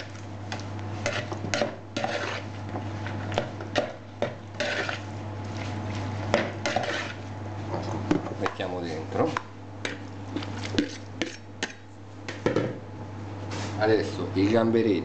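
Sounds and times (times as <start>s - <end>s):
metal spoon scraping plastic bowl: 2.0s - 2.5s, 4.6s - 5.0s, 6.7s - 7.2s.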